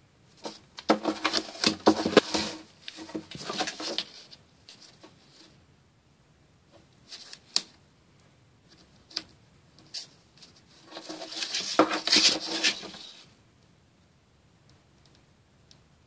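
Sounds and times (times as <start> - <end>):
rustling: 0.2 - 5.6, 8.6 - 13.4
cat scratching cardboard: 0.4 - 5.5, 8.8 - 13.3.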